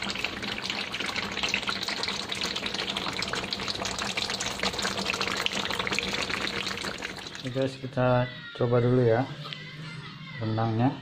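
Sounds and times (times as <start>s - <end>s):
thick sauce bubbling and popping: 0.0s - 7.5s.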